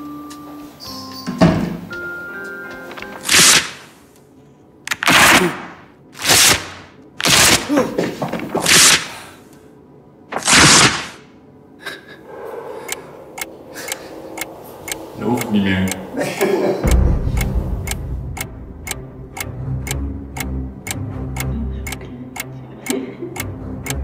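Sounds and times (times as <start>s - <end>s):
faint clicks: 12.9s - 16.0s.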